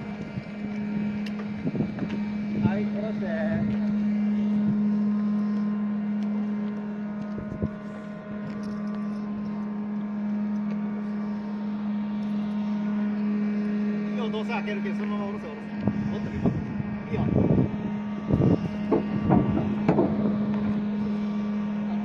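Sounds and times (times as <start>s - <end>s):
steady machine hum: 0.0s - 22.0s.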